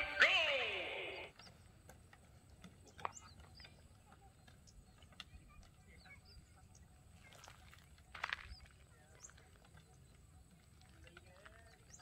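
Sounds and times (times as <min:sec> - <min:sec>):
bird chirps: 0:02.8 - 0:07.6.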